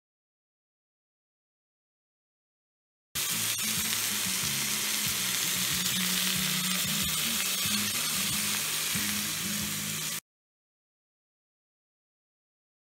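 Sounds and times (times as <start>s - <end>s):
meat and onions sizzling in pan: 3.2s - 10.2s.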